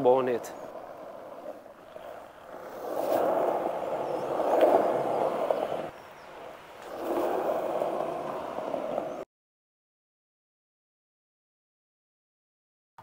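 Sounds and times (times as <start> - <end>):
skateboard wheels rolling on concrete: 0.0 - 9.3.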